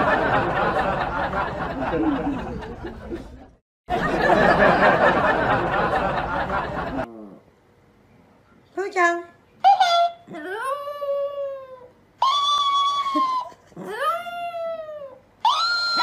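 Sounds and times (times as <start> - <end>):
canned crowd laughter: 0.0 - 7.1.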